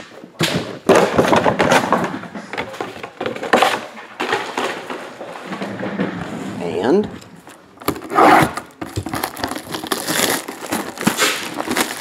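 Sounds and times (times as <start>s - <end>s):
plastic packaging crinkling: 7.4s - 12.0s.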